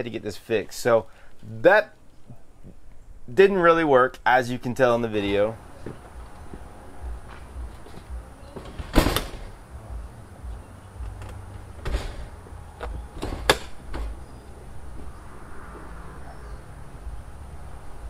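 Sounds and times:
door shutting with a bang: 8.5 - 9.6, 11.7 - 14.3
knocks and clicks on door: 8.5 - 9.6, 11.0 - 14.2.

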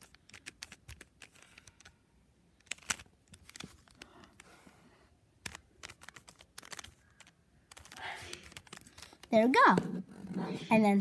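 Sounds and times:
puzzle cube plastic clicks: 0.0 - 4.5, 5.4 - 9.3.

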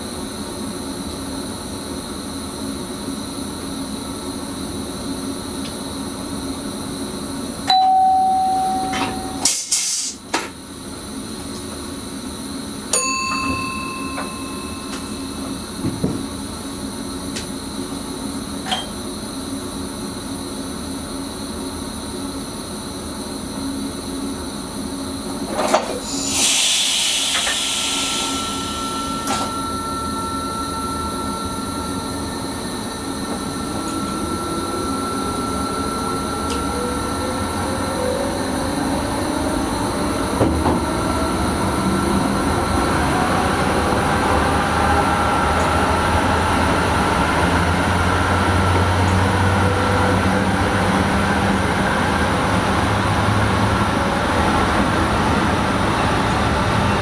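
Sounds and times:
train traction motors whining: 0.0 - 57.0
air hiss: 9.5 - 10.2, 26.0 - 30.2.

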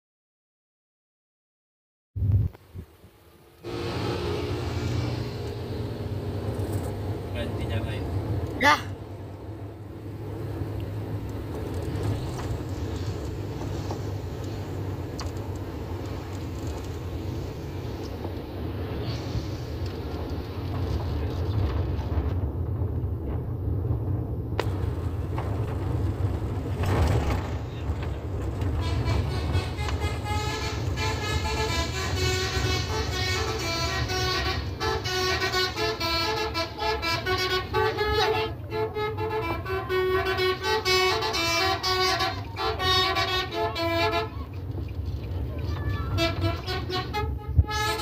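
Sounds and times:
car engine and tyres rumbling: 2.2 - 48.0
musical bus horn: 3.6 - 5.8, 28.7 - 44.6, 45.9 - 48.0.

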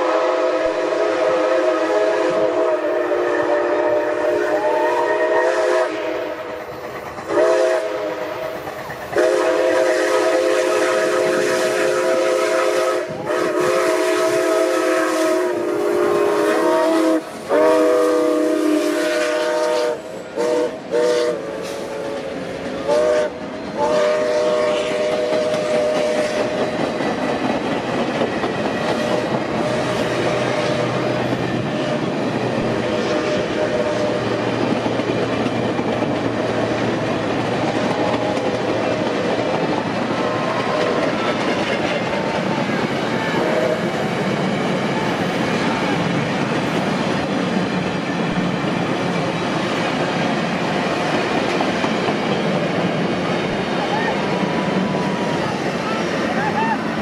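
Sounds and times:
steam whistle blasts: 0.0 - 6.6, 7.3 - 8.5, 9.2 - 22.2, 22.8 - 26.6, 29.0 - 32.0, 32.7 - 34.5, 43.1 - 43.9
train wheels clickety-clack: 1.6 - 57.0.

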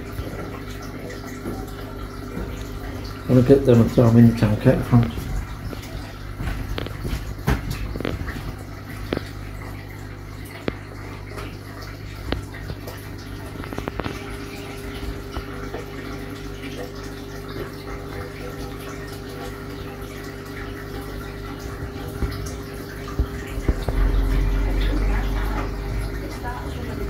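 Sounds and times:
pump hum: 0.0 - 27.0
water trickling and splashing: 0.0 - 27.0
low rumble: 23.4 - 27.0.

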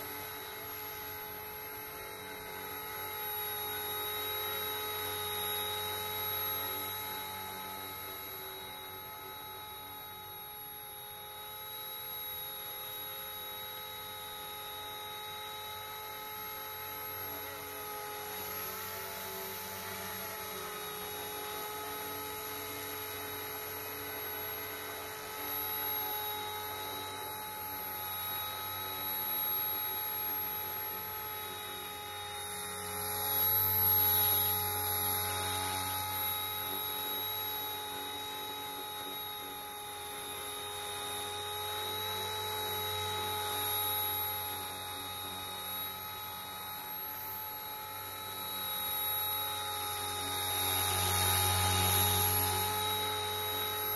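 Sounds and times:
rc helicopter motor whine: 0.0 - 53.9.

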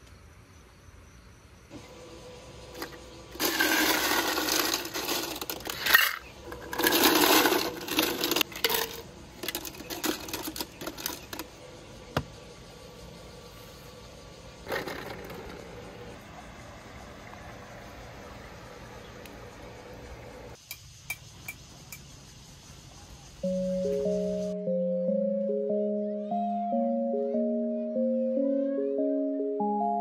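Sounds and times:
small hard objects rattling: 2.8 - 11.5.

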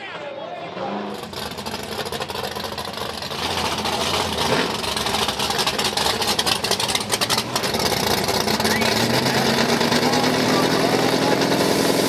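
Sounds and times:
car engine crackling idle: 1.1 - 12.0.

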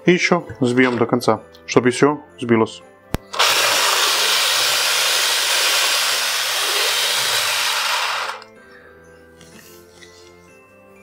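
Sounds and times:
electric hand mixer whisking liquid: 3.3 - 8.5.

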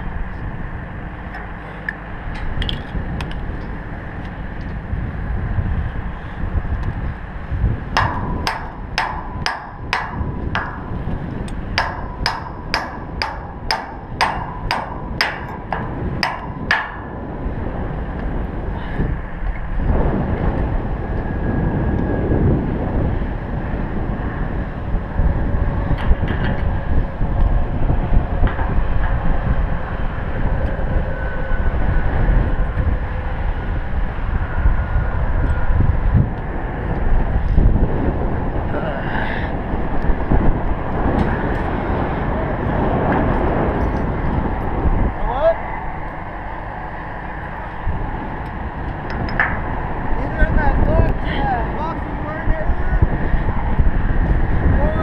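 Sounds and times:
low rumble: 0.0 - 55.0
wind on microphone: 0.0 - 55.0
hammer striking steel: 8.0 - 17.2.

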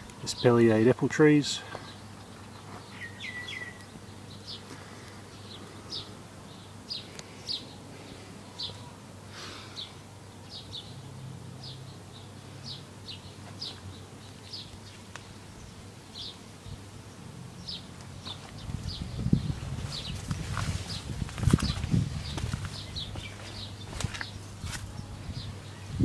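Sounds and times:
small bird chirping: 1.9 - 4.7.

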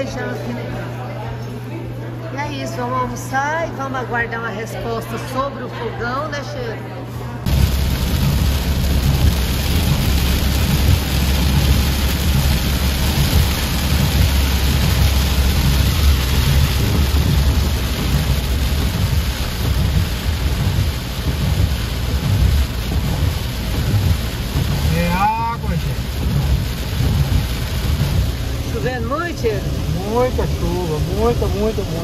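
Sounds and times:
low rumble: 7.4 - 32.0
heavy rain pouring: 7.5 - 32.0.

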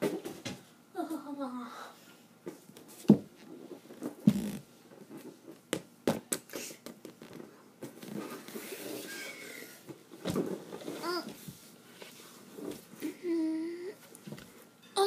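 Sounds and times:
inflatable ball knocks and thumps: 4.2 - 4.6.

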